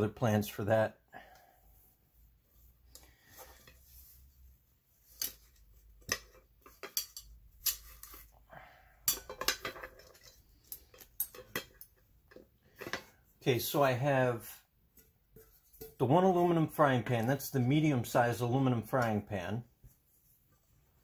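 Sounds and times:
metal pots clinking together: 6.0s - 7.9s, 9.0s - 13.1s, 15.0s - 16.2s.

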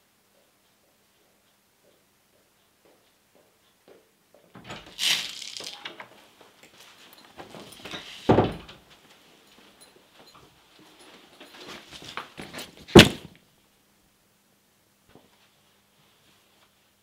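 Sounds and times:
door shutting with deep thud: 8.3s - 8.8s, 12.9s - 13.3s
footsteps: 8.9s - 13.4s
clothing rustle: 10.6s - 13.3s.

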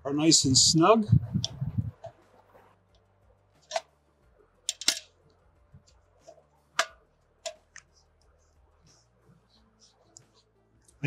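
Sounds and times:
sharp metallic clicks: 4.7s - 5.1s.

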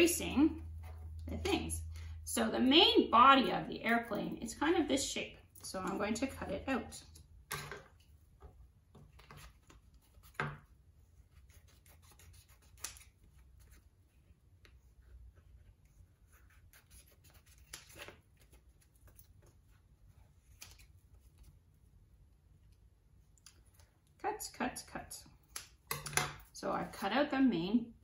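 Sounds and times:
scissors snipping foam paper: 11.4s - 13.8s, 16.3s - 19.2s.

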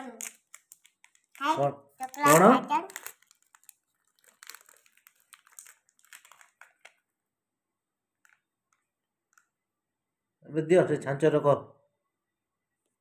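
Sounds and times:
hands crinkling modelling clay: 0.0s - 7.2s.

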